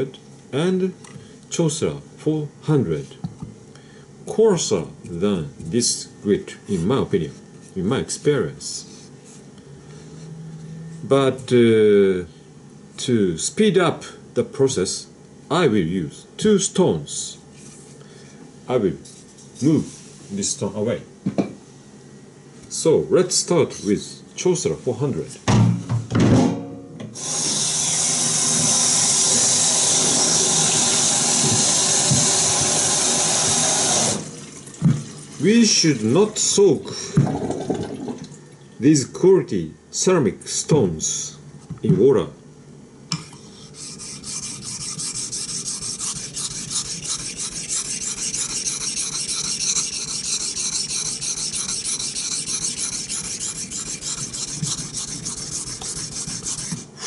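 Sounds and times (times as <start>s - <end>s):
tap water splashing into sink: 34.6s - 35.2s
knife scraping on whetstone: 43.4s - 56.9s.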